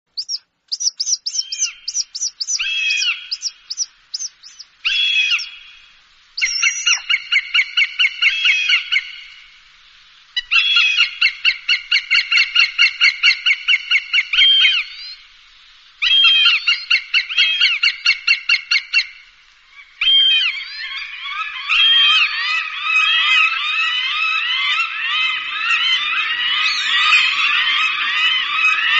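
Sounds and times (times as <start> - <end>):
hawk chattering calls: 0.2 - 5.8, 6.4 - 9.2.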